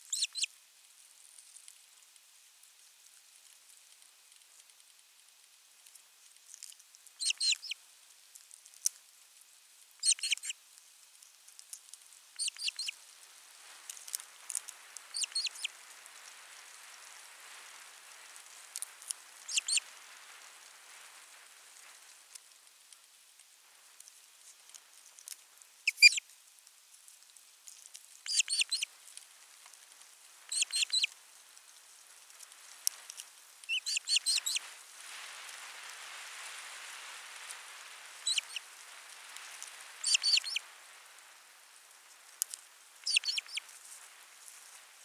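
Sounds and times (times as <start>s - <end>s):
osprey whistled chirps: 10.0s - 10.5s, 15.1s - 15.7s, 19.5s - 19.8s, 25.9s - 26.2s, 28.3s - 28.9s, 33.7s - 34.6s, 38.2s - 38.6s, 40.0s - 40.6s, 43.0s - 43.6s.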